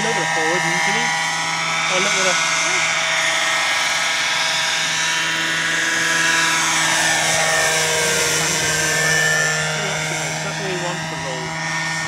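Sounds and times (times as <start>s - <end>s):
model helicopter engine and rotor whine: 0.0s - 12.0s.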